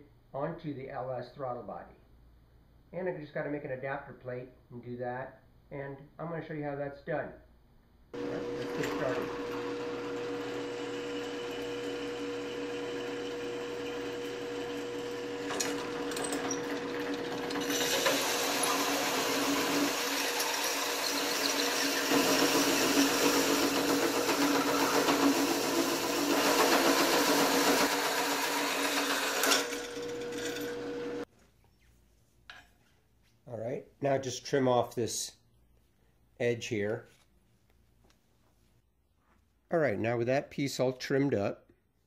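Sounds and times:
hole saw cutting metal: 8.2s - 31.2s
drill press motor humming: 8.2s - 31.3s.

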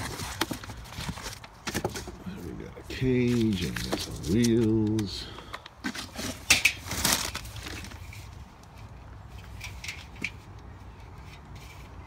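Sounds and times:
cardboard scraping and rustling: 0.0s - 2.3s, 5.8s - 8.4s.

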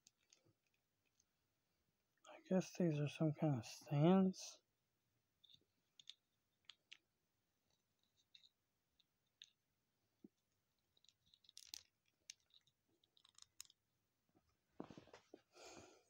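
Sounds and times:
small plastic parts clicking: 0.0s - 1.3s, 5.4s - 7.1s, 7.7s - 9.6s, 10.2s - 13.8s.

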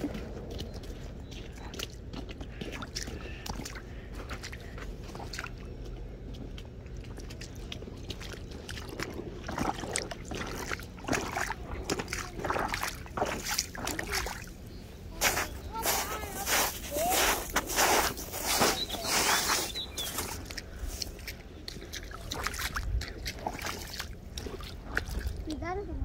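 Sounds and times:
low rumble: 0.0s - 17.0s
boots splashing through puddle: 0.0s - 25.6s.

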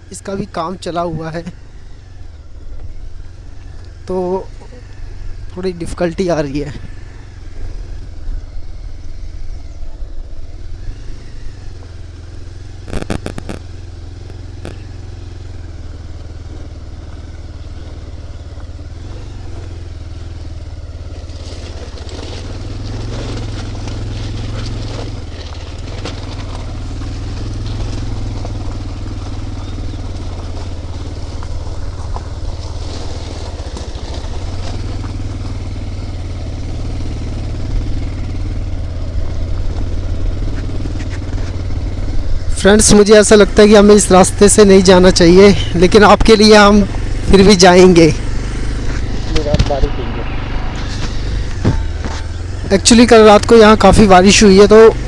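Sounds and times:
motorcycle engine running: 0.0s - 55.0s
tyres crunching over gravel: 9.6s - 55.0s
sharp clicks: 12.8s - 14.8s.

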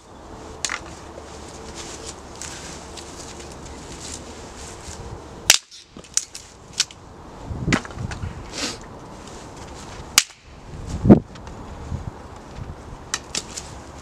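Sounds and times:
dry sticks snapping: 0.6s - 1.1s, 2.0s - 4.2s, 5.5s - 7.0s, 9.6s - 10.6s, 13.1s - 13.7s.

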